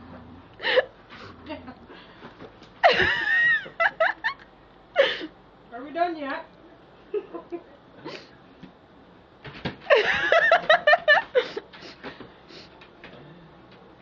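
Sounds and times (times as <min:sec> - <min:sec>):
person laughing: 0:02.8 - 0:04.4, 0:09.9 - 0:11.6.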